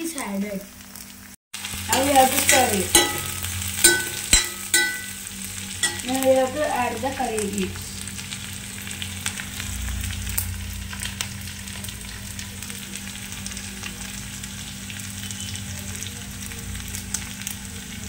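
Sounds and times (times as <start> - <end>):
food sizzling in oil: 0.0 - 18.0
spoon stirring pan: 1.9 - 5.2, 5.8 - 6.2.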